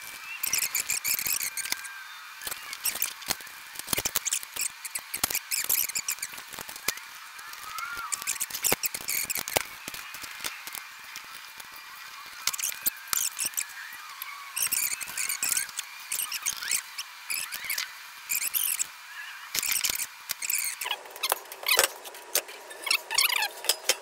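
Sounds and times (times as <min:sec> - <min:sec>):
steel parts clanking together: 0:20.8 - 0:24.0.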